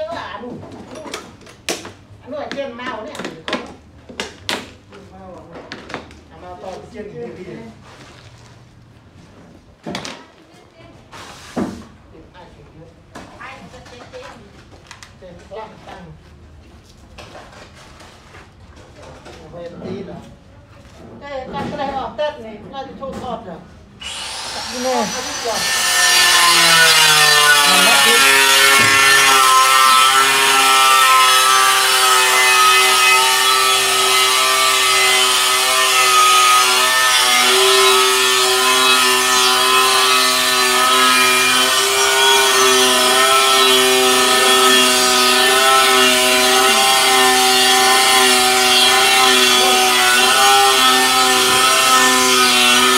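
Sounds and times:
power tool motor running: 0:24.0 - 0:52.9.

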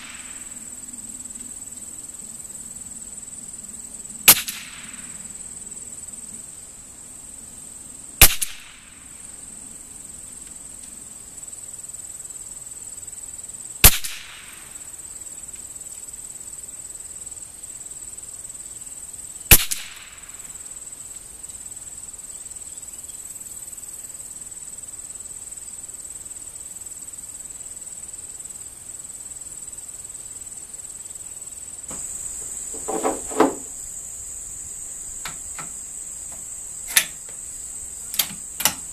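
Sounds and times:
high insect trill: 0:00.0 - 0:38.9
rifle shots with echo: 0:04.3 - 0:05.0, 0:08.2 - 0:08.8, 0:13.9 - 0:14.5, 0:19.5 - 0:20.2.

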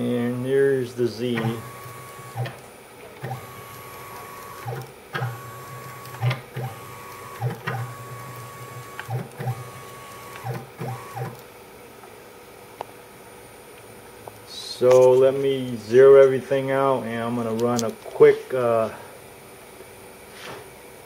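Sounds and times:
stepper motor whining: 0:01.3 - 0:11.4
motor click: 0:01.3 - 0:11.5.

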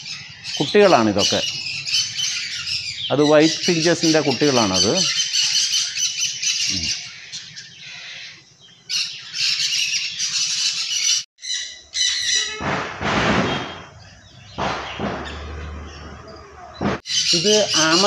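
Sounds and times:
finches chirping and twittering: 0:00.0 - 0:12.6, 0:13.4 - 0:18.0
brief rushing noises: 0:12.6 - 0:14.0.

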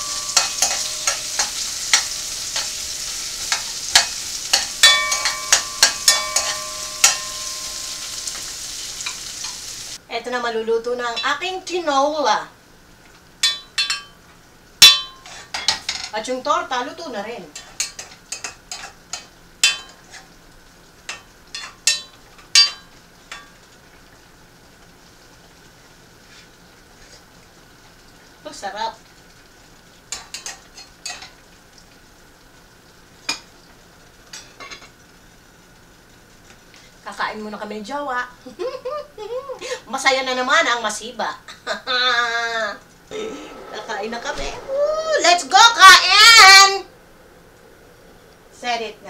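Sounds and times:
metal utensil scraping a pan: 0:00.0 - 0:09.8, 0:14.8 - 0:16.1
faint steady hiss: 0:00.0 - 0:49.0
food sizzling in a frying pan: 0:00.0 - 0:49.0.

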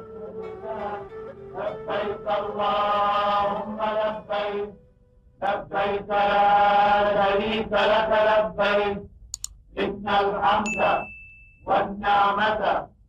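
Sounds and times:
person chanting: 0:00.0 - 0:04.8, 0:05.4 - 0:09.0, 0:09.8 - 0:11.0, 0:11.7 - 0:12.9
sharp clicks: 0:09.4 - 0:09.6.

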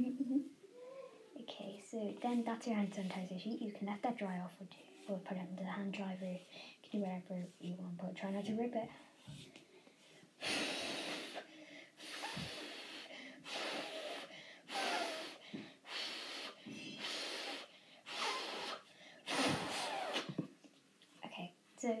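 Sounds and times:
blowing through paper strip: 0:10.4 - 0:20.4.

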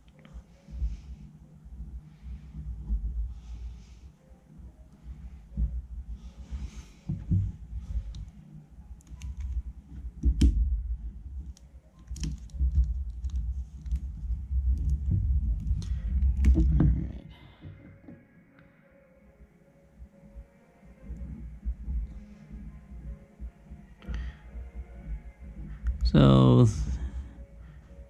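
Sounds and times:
thumps and rumble on table: 0:10.0 - 0:10.9, 0:12.2 - 0:18.2.

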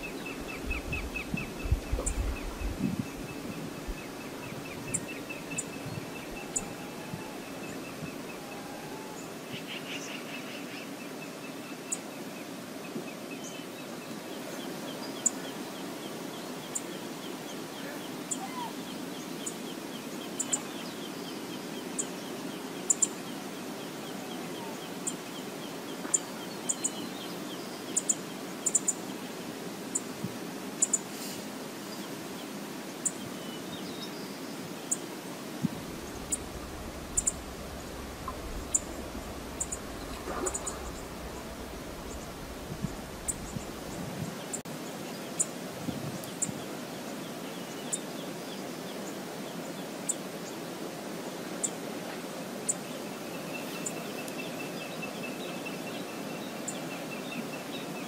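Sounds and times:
outdoor background noise: 0:00.0 - 0:58.0
low rumble: 0:35.7 - 0:44.2.

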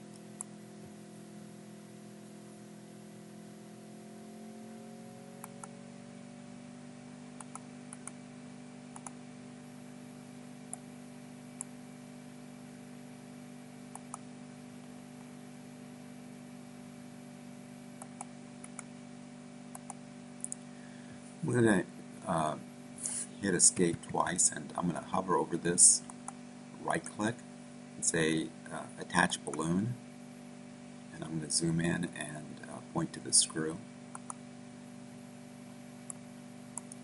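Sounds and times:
steady low hum: 0:00.0 - 0:37.0
computer mouse clicking: 0:05.4 - 0:05.7, 0:07.4 - 0:08.2, 0:08.9 - 0:09.2, 0:13.9 - 0:14.2, 0:18.0 - 0:18.9, 0:19.7 - 0:20.6, 0:34.1 - 0:34.4, 0:36.8 - 0:37.0.

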